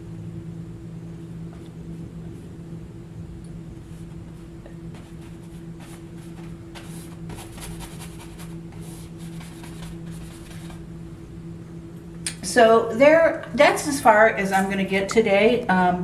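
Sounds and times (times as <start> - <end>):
low hum: 0.0 - 16.0
paintbrush strokes on canvas: 4.9 - 10.8.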